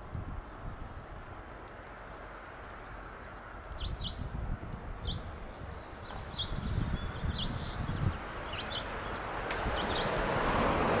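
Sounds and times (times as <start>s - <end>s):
finch chirping: 4.9s - 9.2s.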